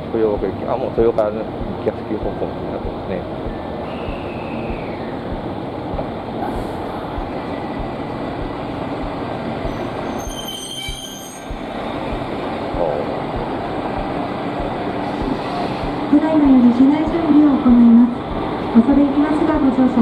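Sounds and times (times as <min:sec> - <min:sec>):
train rumbling on rails: 0:00.0 - 0:20.0
brakes squealing: 0:01.6 - 0:16.2.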